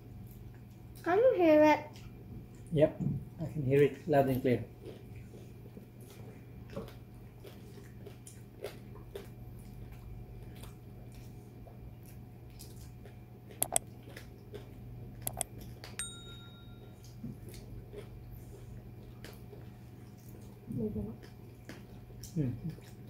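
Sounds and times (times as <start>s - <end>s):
eating by hand chewing: 0.0s - 1.1s, 3.5s - 23.0s
steady low hum: 0.0s - 23.0s
ringing clink: 16.0s - 17.0s.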